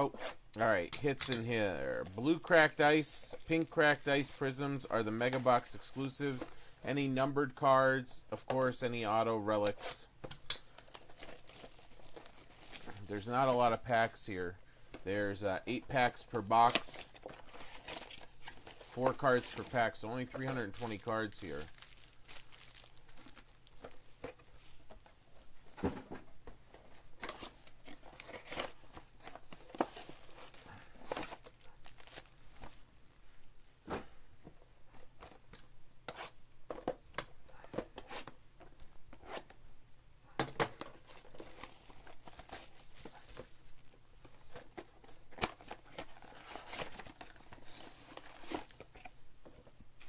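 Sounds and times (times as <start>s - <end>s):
wrappers crinkling and tearing: 10.7s - 13.3s, 17.0s - 24.0s, 30.0s - 32.3s, 41.0s - 43.6s.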